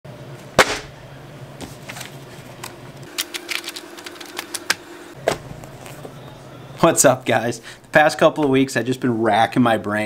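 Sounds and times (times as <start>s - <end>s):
sharp thump: 0.6s - 0.9s
paper pages flipping: 1.6s - 4.8s.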